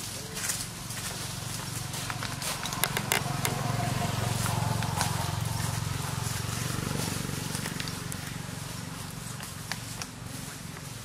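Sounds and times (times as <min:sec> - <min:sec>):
vehicle engine hum: 0:00.0 - 0:11.0
sharp clicks: 0:02.6 - 0:03.6.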